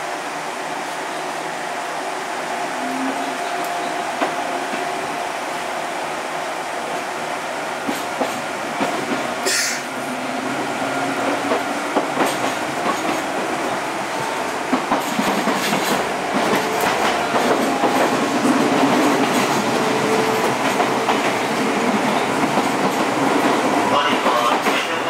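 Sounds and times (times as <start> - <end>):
electric train running noise: 0.0 - 25.0
short hiss: 9.4 - 9.9.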